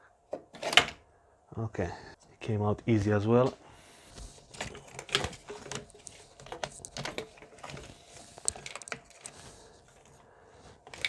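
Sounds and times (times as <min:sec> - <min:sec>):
metal parts clicking and knocking: 0:04.5 - 0:09.3.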